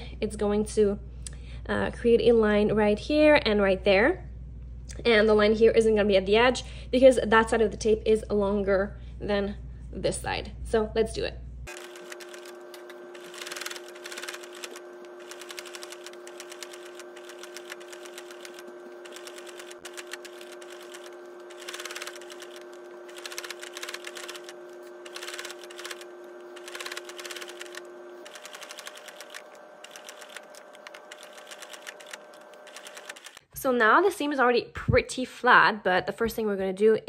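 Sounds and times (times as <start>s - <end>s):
electric sewing machine running: 11.7s - 33.4s.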